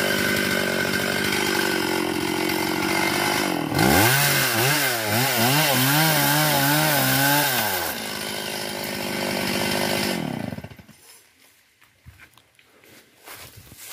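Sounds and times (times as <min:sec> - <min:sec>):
chainsaw cutting log: 0:00.0 - 0:11.0.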